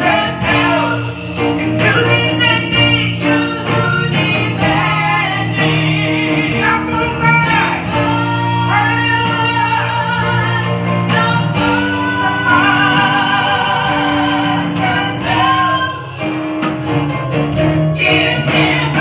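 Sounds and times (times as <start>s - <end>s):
women singing: 0.0s - 16.4s, 18.0s - 19.0s
instrumental accompaniment: 0.0s - 19.0s.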